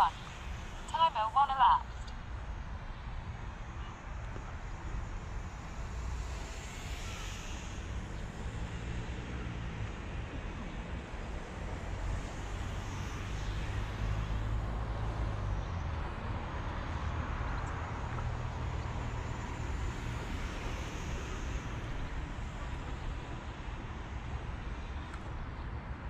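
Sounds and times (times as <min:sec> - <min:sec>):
model plane motor whine: 0:04.6 - 0:10.4, 0:19.5 - 0:23.6.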